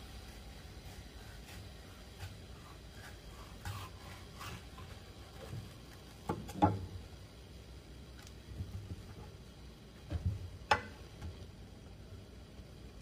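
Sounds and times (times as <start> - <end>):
knife scraping on cutting board: 0.8 - 5.5.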